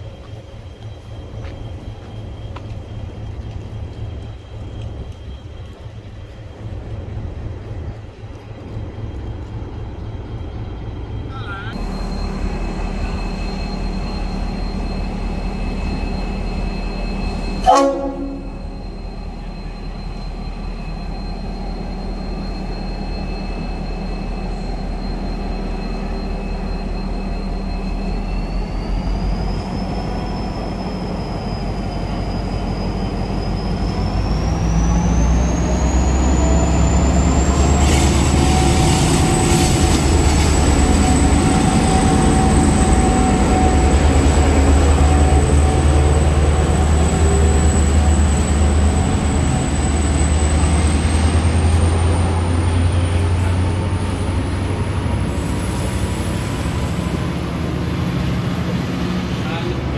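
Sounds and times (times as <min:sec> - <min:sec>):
locomotive engine rumble: 0:00.0 - 0:59.9
high whine rising in pitch: 0:11.8 - 0:55.7
short horn toot: 0:17.6 - 0:18.8.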